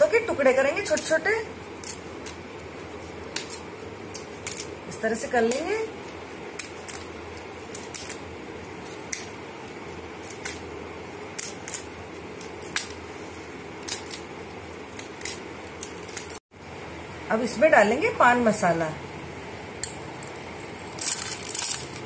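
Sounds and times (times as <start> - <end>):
leaves being torn by hand: 1.8 - 4.8, 5.5 - 16.4.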